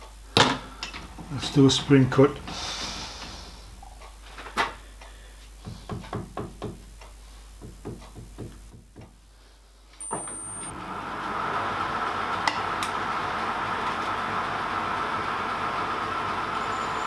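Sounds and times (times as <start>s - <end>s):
lathe motor running: 10.0s - 17.0s.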